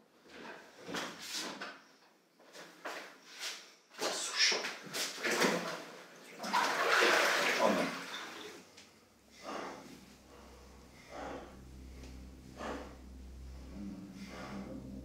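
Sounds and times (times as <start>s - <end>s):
bath water sloshing and splashing: 4.0s - 11.6s
low steady hum: 8.6s - 15.0s.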